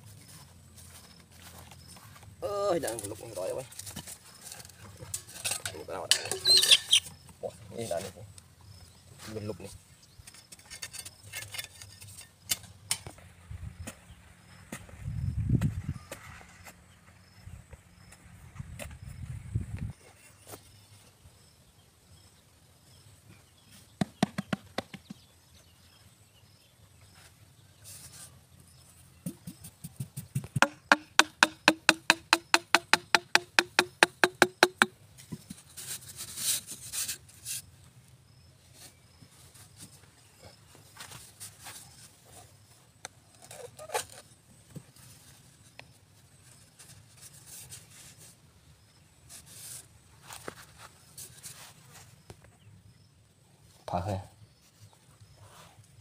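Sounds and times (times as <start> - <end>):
loose soil scraping: 9.2 - 13.2, 27.0 - 37.8, 43.3 - 52.3
hoe chopping and scraping dirt: 10.2 - 13.2, 23.7 - 25.3, 29.2 - 37.7
fast ringing knocks: 30.6 - 34.9.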